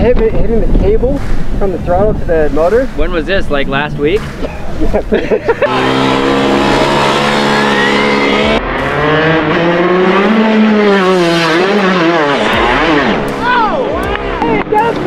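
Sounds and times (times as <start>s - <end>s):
kart engine running hard: 5.6s - 15.0s.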